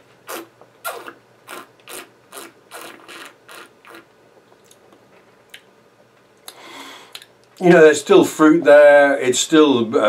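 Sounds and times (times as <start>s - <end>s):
person slurping wine: 0.3s - 4.1s.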